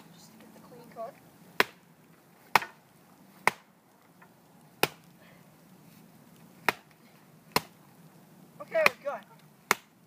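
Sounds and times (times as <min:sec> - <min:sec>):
wood being chopped: 0:01.5 - 0:05.1, 0:06.6 - 0:07.8, 0:08.8 - 0:10.0.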